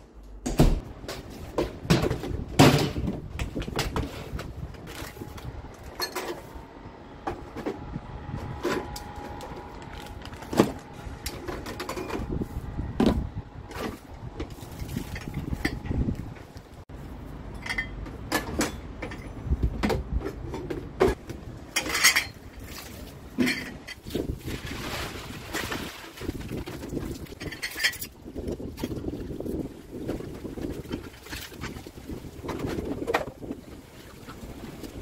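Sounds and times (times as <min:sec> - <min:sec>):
plastic basins clattering: 0:01.0 - 0:06.5, 0:19.9 - 0:35.0.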